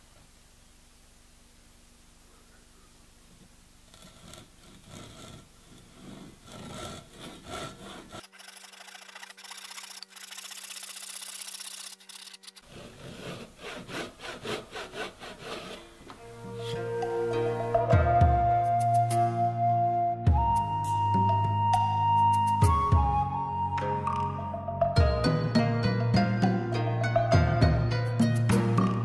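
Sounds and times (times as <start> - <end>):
faint hum: 0.0 - 5.9
handsaw rasping through wood: 3.9 - 16.0.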